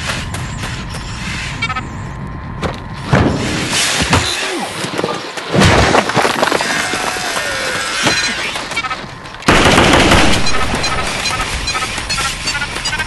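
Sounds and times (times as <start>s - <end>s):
gunshots: 9.5s - 11.5s
rapid gunfire burst: 9.5s - 11.9s.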